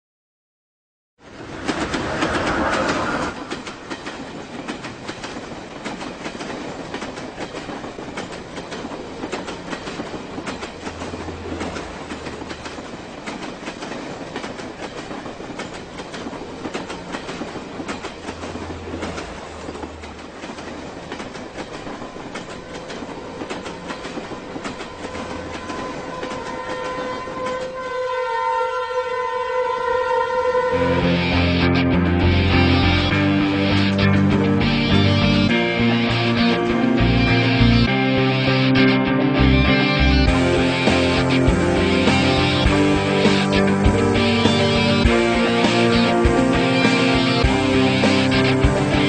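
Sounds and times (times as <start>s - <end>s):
train rumbling on track: 1.2s - 49.0s
wheels clattering over rails: 1.3s - 27.8s
music with sustained tones: 30.7s - 49.0s.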